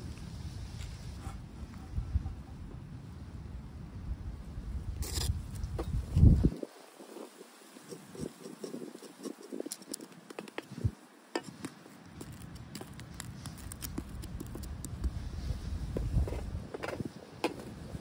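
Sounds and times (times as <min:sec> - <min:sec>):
wind rumble on microphone: 0:00.0 - 0:11.1, 0:12.2 - 0:18.0
pancake frying crackles: 0:06.6 - 0:15.2.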